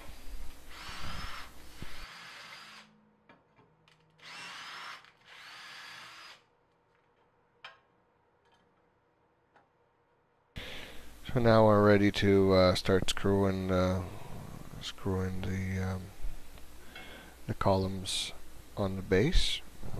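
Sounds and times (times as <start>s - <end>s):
power drill motor whining: 0.7s - 2.9s, 4.2s - 6.4s.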